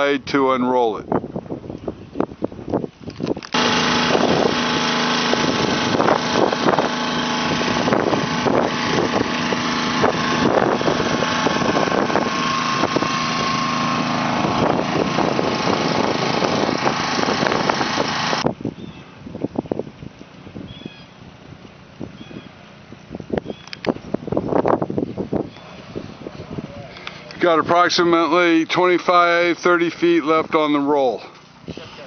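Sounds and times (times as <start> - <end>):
small water pump engine running: 3.4 - 18.6.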